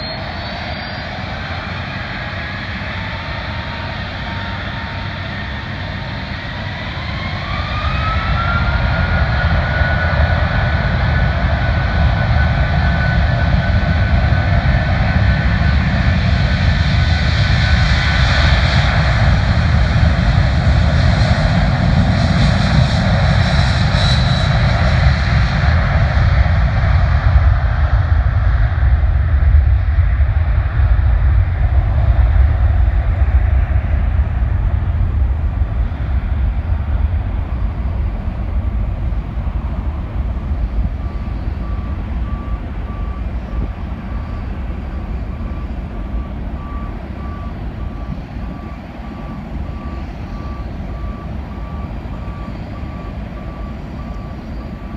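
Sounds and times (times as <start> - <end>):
jet engines roaring: 0.0 - 54.9
vehicle reversing alarm beeping: 40.3 - 54.9.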